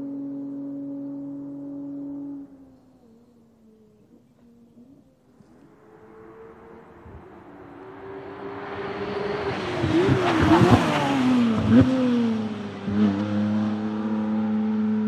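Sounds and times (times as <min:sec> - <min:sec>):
race car passing at full throttle: 0:04.9 - 0:15.0.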